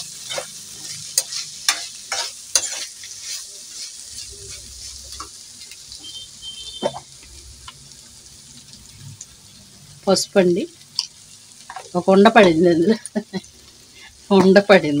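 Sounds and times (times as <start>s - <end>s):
steel spatula scraping pan: 0.0s - 5.3s
food sizzling: 0.0s - 15.0s.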